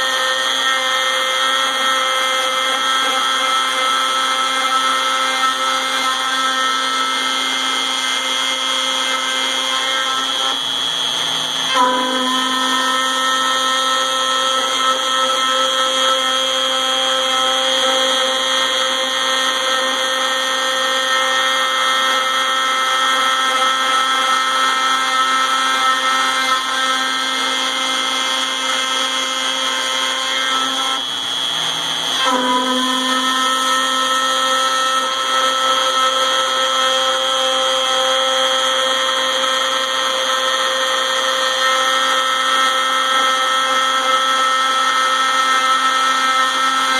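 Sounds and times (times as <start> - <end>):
router whining cutting aluminum: 0.0 - 46.9.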